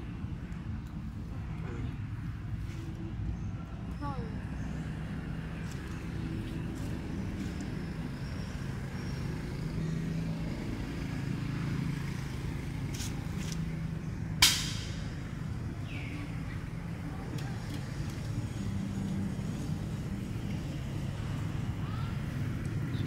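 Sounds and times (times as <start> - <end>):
low engine hum: 0.0 - 23.0
sharp click: 14.4 - 15.0.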